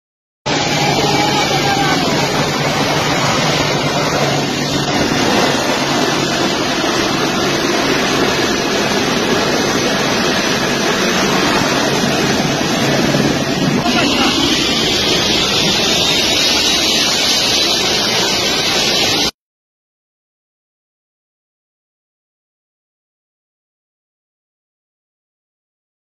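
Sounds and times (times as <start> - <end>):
jet engines roaring: 0.5 - 19.4
rushing air: 0.5 - 19.4.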